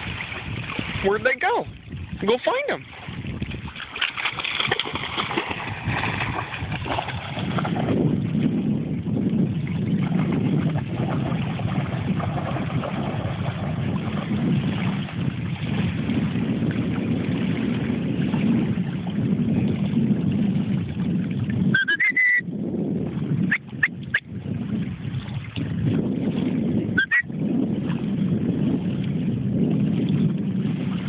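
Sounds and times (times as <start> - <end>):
wind rumbling on microphone: 0.0 - 31.0
short rising whistle: 21.8 - 22.4.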